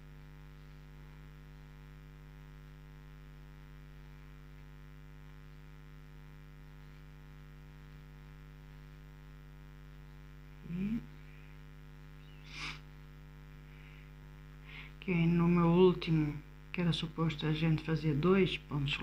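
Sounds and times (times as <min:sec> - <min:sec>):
faint electrical mains hum: 0:00.0 - 0:19.0.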